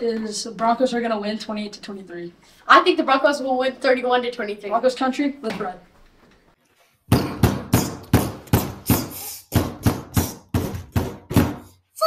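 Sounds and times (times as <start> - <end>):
fast sharp percussive hits: 7.1 - 11.8.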